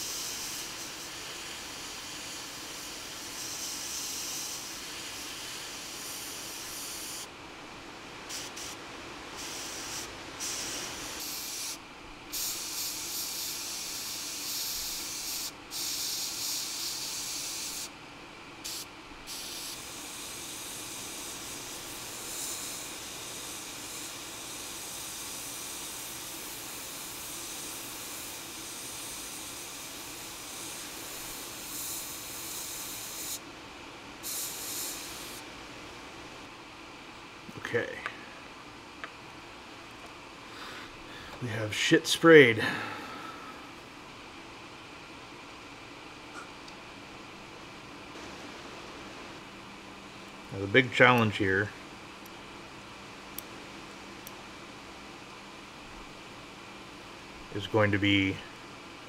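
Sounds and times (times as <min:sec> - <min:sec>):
airbrush spraying hiss: 0:00.0 - 0:07.3, 0:08.3 - 0:18.0, 0:18.6 - 0:33.5, 0:34.2 - 0:35.4.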